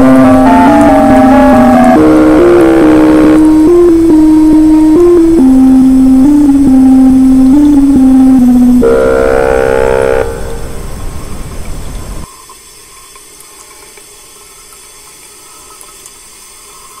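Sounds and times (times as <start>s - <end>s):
electronic drone: 0.0s - 11.7s
static hiss: 0.0s - 12.7s.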